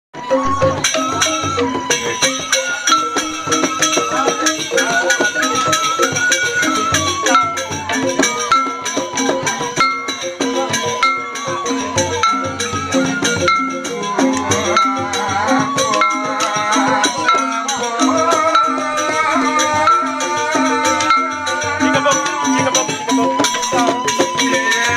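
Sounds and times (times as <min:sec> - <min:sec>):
bamboo xylophones played with mallets: 0:00.1 - 0:24.9
cymbal and percussion dance beat: 0:00.2 - 0:24.9.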